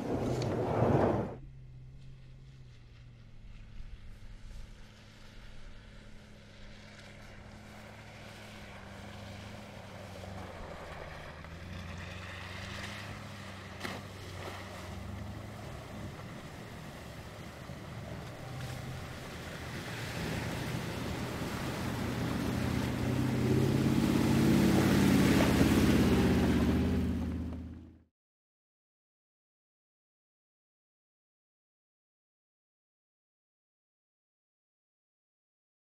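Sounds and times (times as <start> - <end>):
suv engine running: 0.0 - 28.0
water sloshing under tyres: 6.7 - 27.8.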